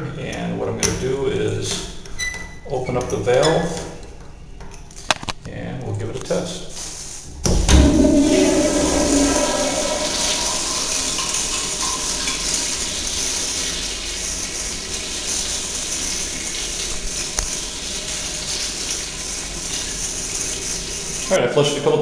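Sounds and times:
toilet flushing: 0:07.4 - 0:22.0.

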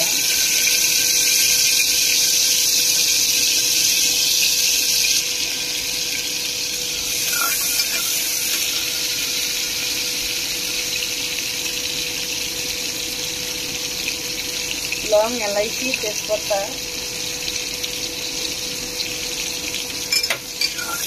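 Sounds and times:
onions sizzling in hot oil: 0:00.0 - 0:21.0.

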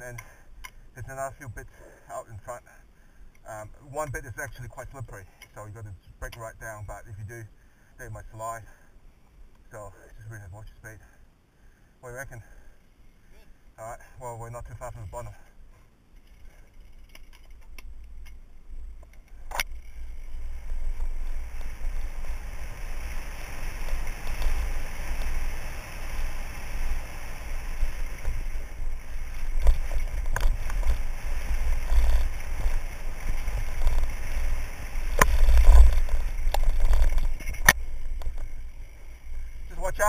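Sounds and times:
bike tyres on dirt: 0:14.7 - 0:40.0
wind rumble on microphone: 0:18.8 - 0:39.9
bike rattling over bumps: 0:19.3 - 0:40.0.

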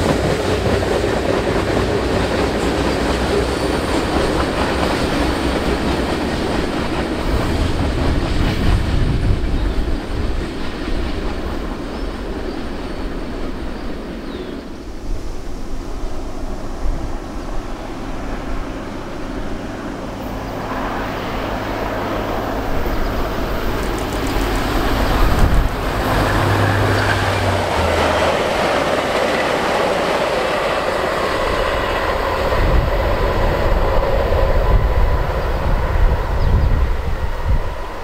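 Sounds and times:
diesel locomotive engine drone: 0:00.0 - 0:38.0
train cars rumbling on rails: 0:00.0 - 0:38.0.

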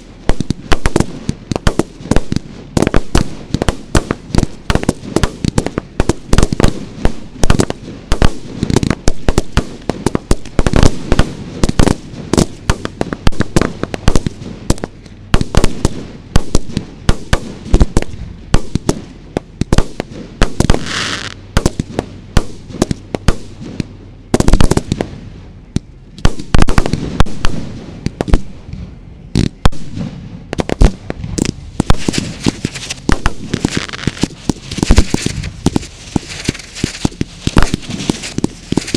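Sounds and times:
fireworks bangs and pops: 0:00.0 - 0:38.9
rushing hiss: 0:31.8 - 0:38.9.

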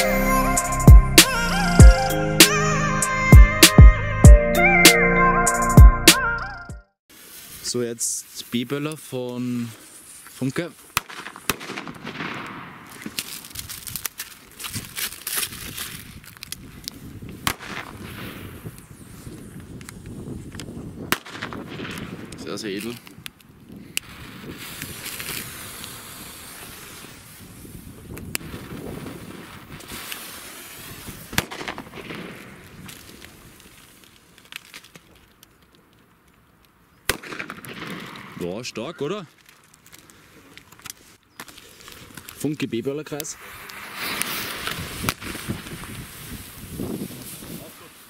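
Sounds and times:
hiss: 0:07.1 - 0:08.6, 0:24.4 - 0:27.8, 0:29.7 - 0:31.4
rustling hiss: 0:07.1 - 0:21.0, 0:21.8 - 0:36.4, 0:37.0 - 0:48.0
firecrackers cracking and popping: 0:08.4 - 0:48.0
small firecracker pops: 0:10.9 - 0:14.2, 0:17.3 - 0:18.8, 0:19.7 - 0:26.0, 0:28.1 - 0:28.7, 0:31.0 - 0:33.7, 0:37.1 - 0:38.4, 0:43.6 - 0:46.0
firecracker bang: 0:11.0 - 0:13.2, 0:30.8 - 0:32.9, 0:37.1 - 0:38.6.

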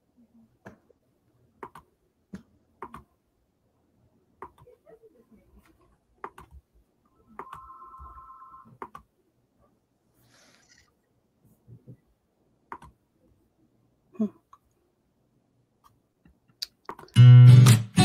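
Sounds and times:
mouse and keyboard clicks: 0:01.6 - 0:03.1, 0:06.2 - 0:06.6, 0:12.7 - 0:13.0.

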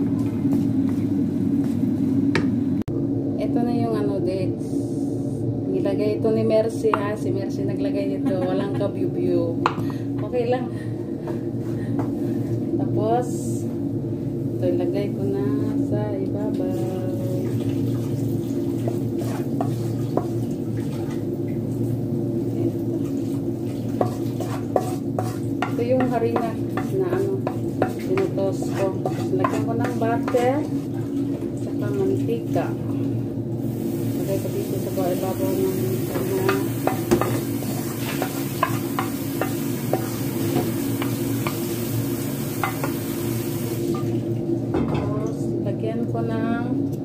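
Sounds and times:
steady low hum: 0:00.0 - 0:47.0
metal spoon scraping frying pan: 0:23.9 - 0:31.0, 0:36.0 - 0:41.7, 0:42.6 - 0:43.2
spoon scraping and clinking: 0:28.6 - 0:30.0.

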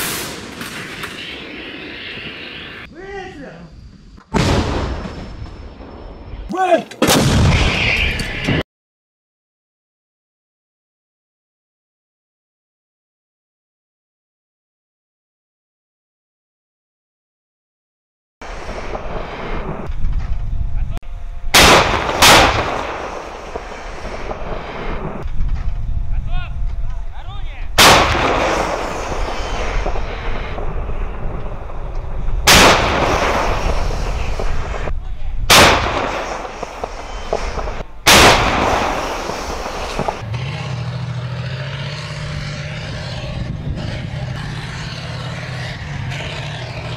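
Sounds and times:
howitzer blasts with echo: 0:21.5 - 0:25.2, 0:27.7 - 0:34.9, 0:35.5 - 0:40.7
tracked vehicle engine: 0:39.7 - 0:46.9.

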